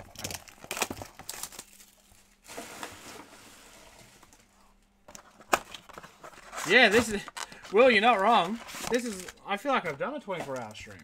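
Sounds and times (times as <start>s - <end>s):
wrapping crinkling and tearing: 0.0s - 4.8s, 5.7s - 9.5s.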